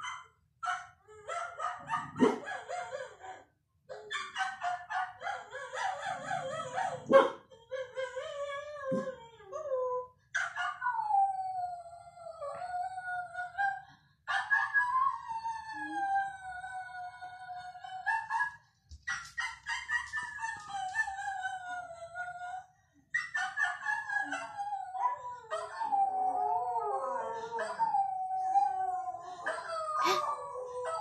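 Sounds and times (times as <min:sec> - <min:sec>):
dogs howling: 0:23.8 - 0:31.0.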